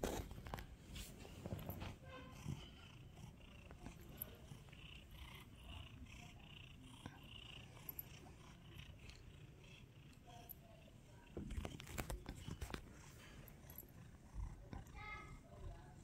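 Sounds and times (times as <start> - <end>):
cat purring: 0.0 - 16.0.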